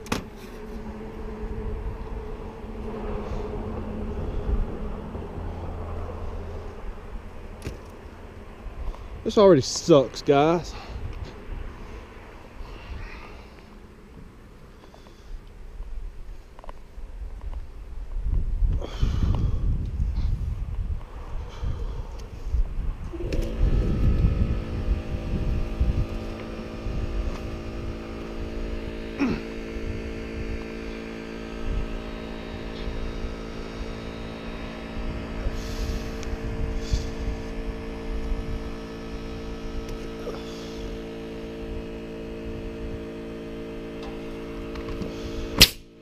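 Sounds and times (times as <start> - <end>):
engine starting and humming: 0.0 - 9.4, 21.2 - 46.0
wind buffeting microphone: 0.9 - 5.5, 17.3 - 29.0, 31.6 - 39.9
sharp click: 45.6 - 45.9.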